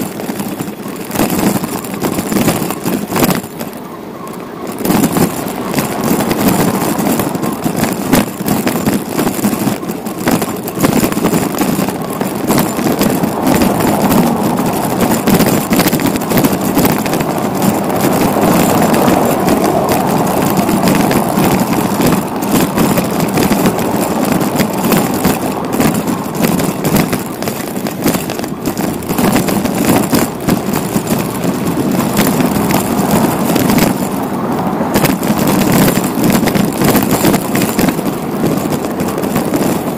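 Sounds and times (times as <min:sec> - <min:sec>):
wind and road noise: 0:00.0 - 0:39.9.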